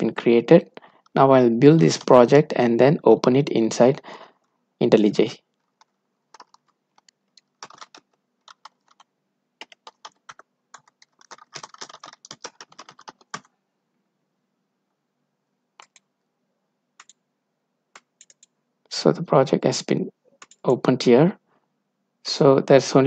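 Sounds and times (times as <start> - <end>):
typing on computer keyboard: 5.5 - 13.5, 15.8 - 16.1, 17.0 - 17.2, 17.9 - 18.6, 20.4 - 20.6.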